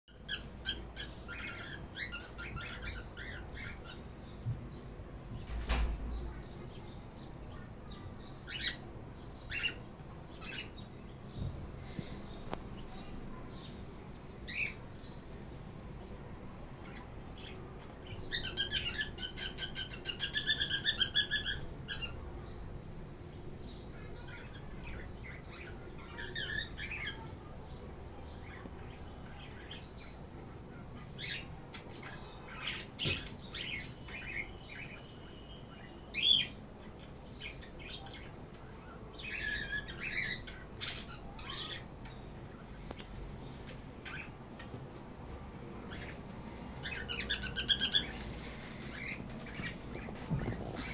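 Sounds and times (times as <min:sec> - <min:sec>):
cockatiel chirping and chattering: 0:00.3 - 0:04.0, 0:18.3 - 0:22.2, 0:46.8 - 0:48.2.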